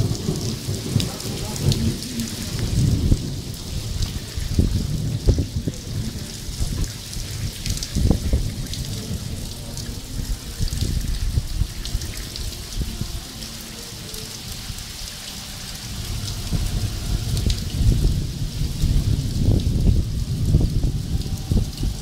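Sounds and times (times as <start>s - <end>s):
hailstones and rain striking: 0.0s - 22.0s
steady rain hiss: 0.0s - 22.0s
low rumble: 14.5s - 22.0s.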